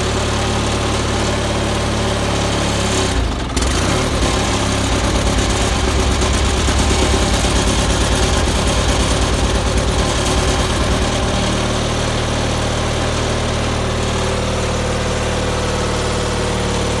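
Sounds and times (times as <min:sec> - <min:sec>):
tractor engine idling: 0:00.0 - 0:17.0.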